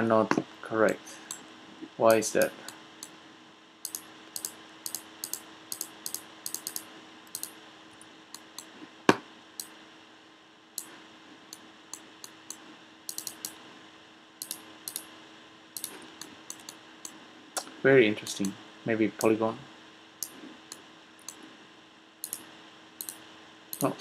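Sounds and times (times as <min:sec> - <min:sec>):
faint hum: 0:00.0 - 0:24.0
keyboard and mouse clicks: 0:03.9 - 0:07.5, 0:11.5 - 0:13.6, 0:14.4 - 0:15.1, 0:15.8 - 0:17.7, 0:22.2 - 0:23.2, 0:23.8 - 0:24.0.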